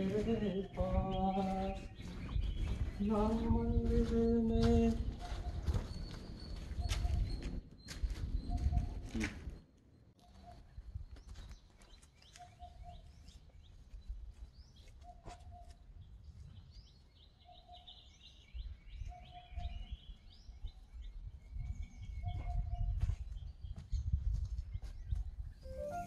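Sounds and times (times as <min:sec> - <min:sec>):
wind rumble on microphone: 0:00.0 - 0:09.6, 0:12.9 - 0:26.0
small birds chirping: 0:00.0 - 0:26.0.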